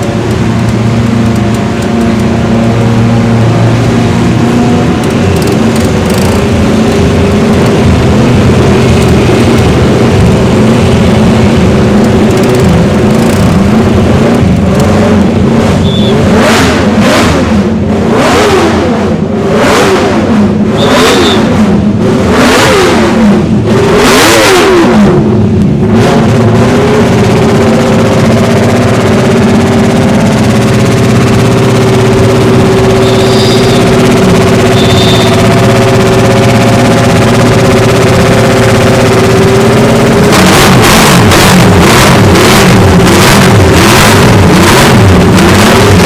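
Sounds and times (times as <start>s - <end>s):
motorcycle engine idling: 0.0s - 14.7s, 27.0s - 40.3s
motorcycle engine revving: 0.0s - 46.0s.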